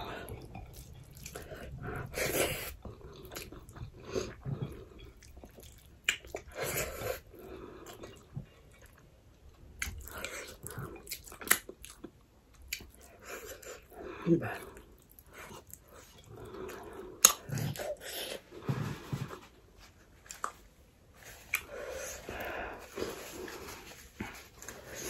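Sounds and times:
person chewing with wet smacks: 0.3s - 1.7s, 2.6s - 18.5s, 20.2s - 20.7s, 21.3s - 22.4s.

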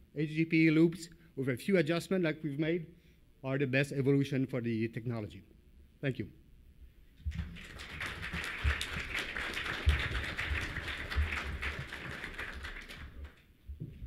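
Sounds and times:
audience applauding: 7.3s - 13.4s.

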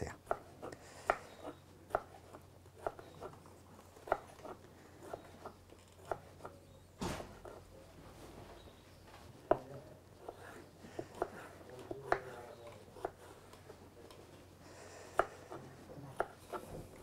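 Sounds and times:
knife cutting tomatoes: 0.2s - 3.4s, 9.4s - 14.3s, 15.2s - 16.7s.

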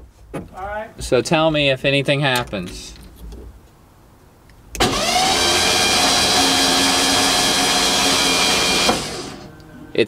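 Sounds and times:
starter cranking engine: 4.8s - 9.5s.

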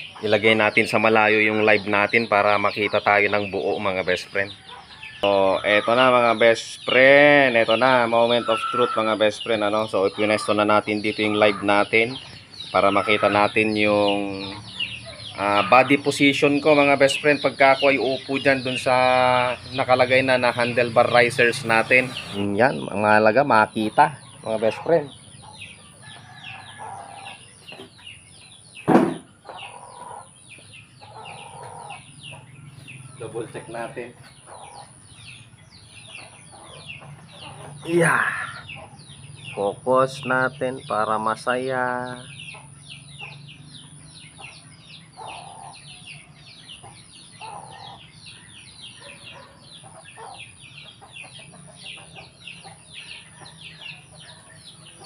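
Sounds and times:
chickens clucking: 0.0s - 55.0s
chicks peeping: 0.0s - 55.0s
loud short knock: 28.8s - 29.3s.

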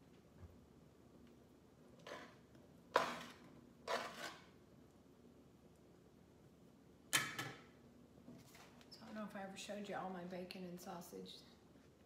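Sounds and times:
spatula scraping in a skillet: 2.0s - 4.6s.

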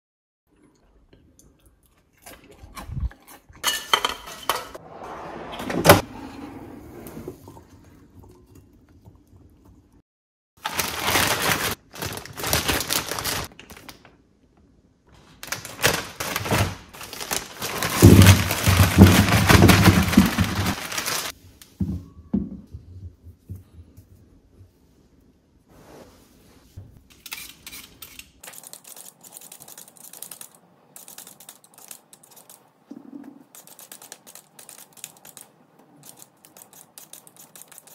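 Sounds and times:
plastic bag crinkling: 10.6s - 14.1s, 15.4s - 21.3s.

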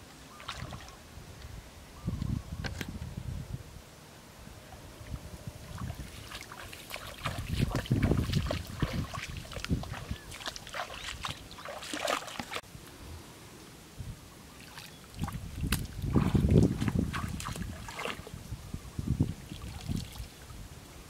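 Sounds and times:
footsteps splashing in shallow water: 0.3s - 1.0s, 5.7s - 12.6s, 14.6s - 18.4s, 19.5s - 20.4s.

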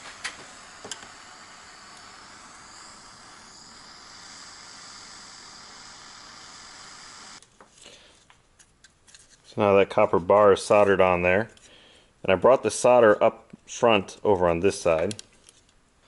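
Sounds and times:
torch flame hissing: 0.0s - 7.4s.

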